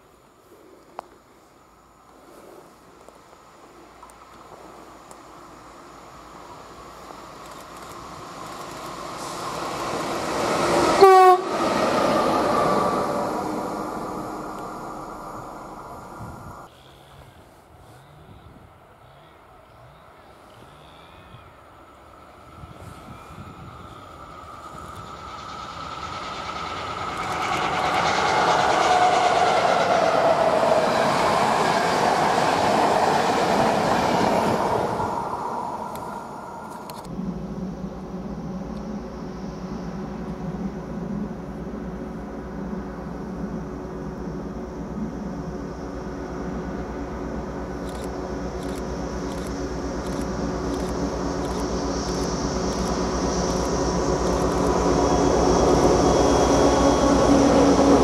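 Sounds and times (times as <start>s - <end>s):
electric locomotive rumbling past: 0.0s - 58.0s
short train horn blast: 10.8s - 13.1s
train wheels clacking on rails: 23.8s - 36.2s.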